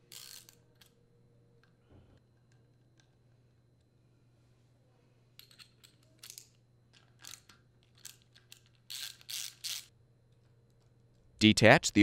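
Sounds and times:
faint low hum: 0:00.0 - 0:12.0.

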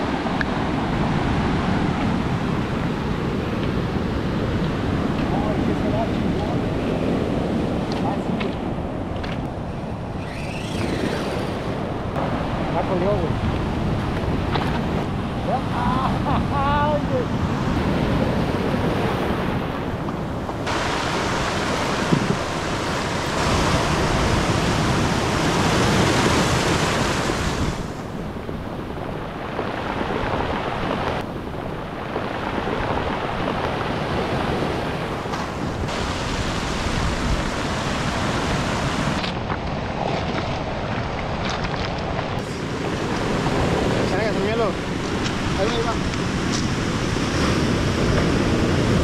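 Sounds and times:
wind buffeting microphone: 0:00.0 - 0:49.0
surf washing over cobbles: 0:19.0 - 0:28.1, 0:29.3 - 0:49.0.

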